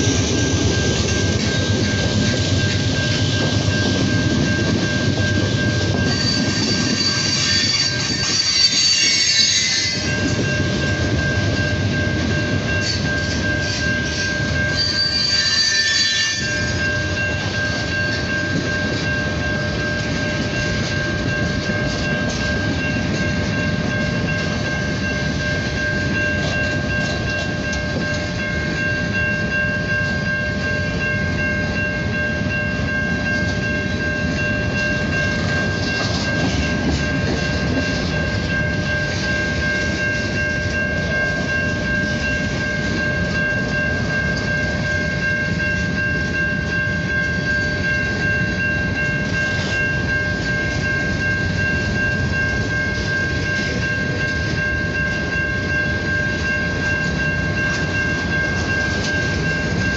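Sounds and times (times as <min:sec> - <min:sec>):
train wheels rumbling on rail: 0:00.0 - 0:59.9
high-pitched wheel squeal: 0:06.1 - 0:10.2, 0:14.7 - 0:16.8.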